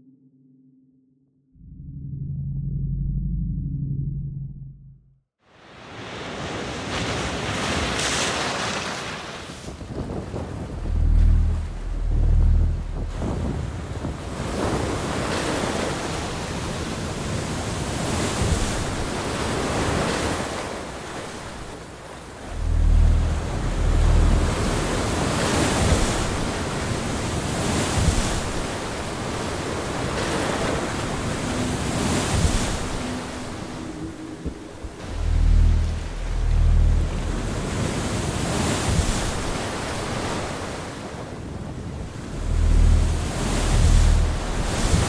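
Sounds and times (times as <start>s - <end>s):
ocean surf breaking on beach: 5.6s - 11.1s, 13.0s - 45.0s
wind buffeting microphone: 9.6s - 20.2s, 22.3s - 40.2s, 41.1s - 45.0s.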